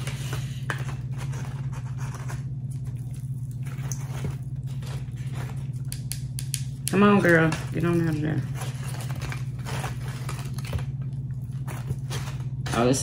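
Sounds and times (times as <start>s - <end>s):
steady low hum: 0.0s - 13.0s
tortilla chips rustling: 7.1s - 13.0s.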